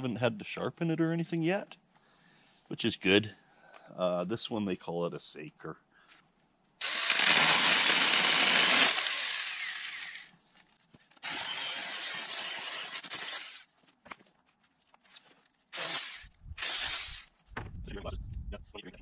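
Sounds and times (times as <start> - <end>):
insects trilling: 0.0 - 19.0
cordless chainsaw cutting brush: 6.8 - 10.3, 11.2 - 13.7, 15.8 - 17.3.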